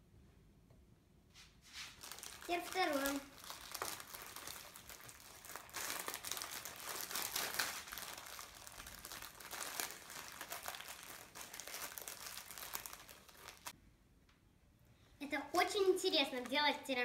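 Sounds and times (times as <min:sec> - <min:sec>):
plastic wrapper crinkling: 0:01.9 - 0:13.8.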